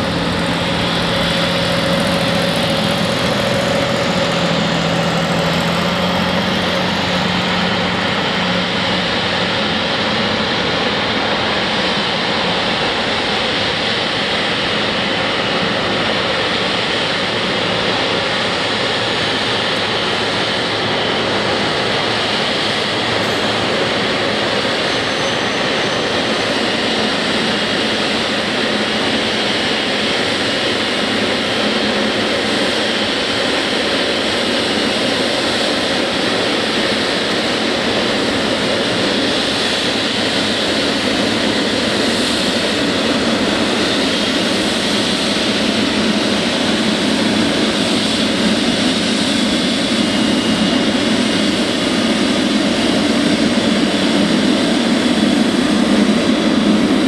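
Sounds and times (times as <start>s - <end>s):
jet engines roaring: 0.0s - 57.0s
faint high whine: 19.4s - 30.0s.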